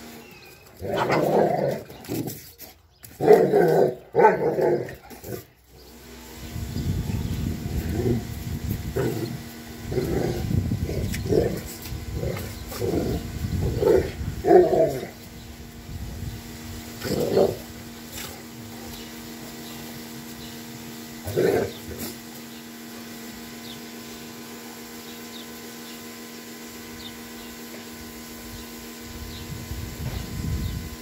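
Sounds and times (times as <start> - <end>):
dogs barking: 0.8 - 1.8, 3.1 - 5.1.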